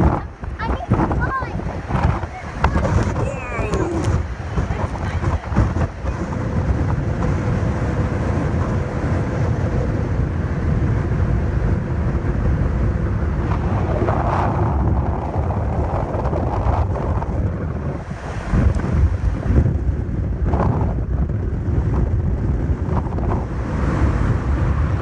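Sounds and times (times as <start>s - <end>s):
surf breaking on rocks: 0.0s - 9.4s, 13.1s - 20.9s
wind buffeting microphone: 0.0s - 25.0s.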